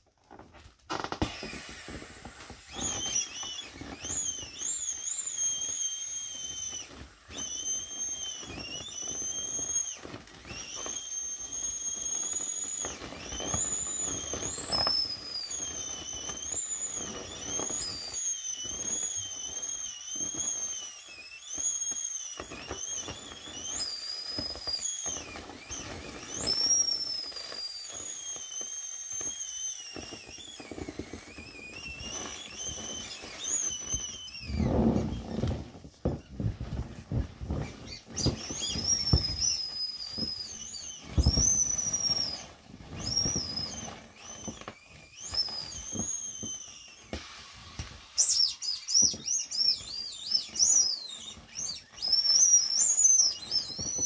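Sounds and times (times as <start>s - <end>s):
plastic rustling: 0.0s - 54.0s
air squealing out of inflatable toy: 0.2s - 54.0s
bump: 31.8s - 43.8s.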